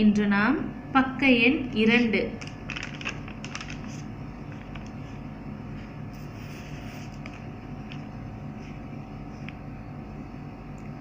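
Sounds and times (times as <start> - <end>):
low mechanical hum: 0.0 - 11.0
notebook pages turning: 2.4 - 5.2, 5.8 - 8.1.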